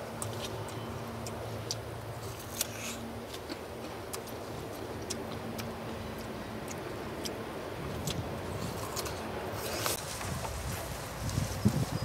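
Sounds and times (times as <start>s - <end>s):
crunchy root being chewed: 0.0s - 12.0s.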